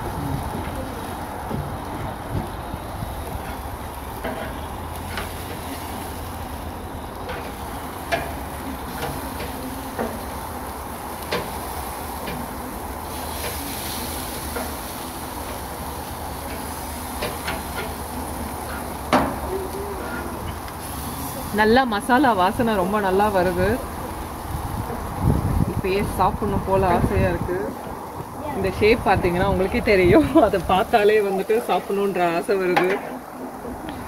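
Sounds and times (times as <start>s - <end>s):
chicken sizzling on grill: 0.0s - 33.9s
tongs clicking against grill grates: 3.2s - 6.3s, 7.2s - 21.3s.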